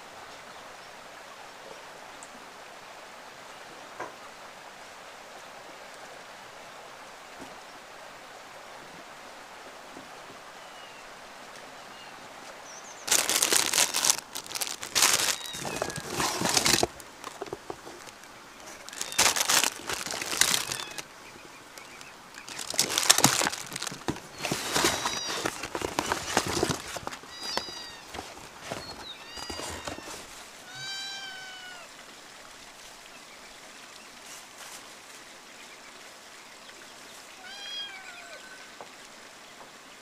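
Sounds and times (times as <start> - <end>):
birds chirping: 11.8 - 26.2
plastic packaging crinkling: 13.0 - 21.1, 21.8 - 30.3.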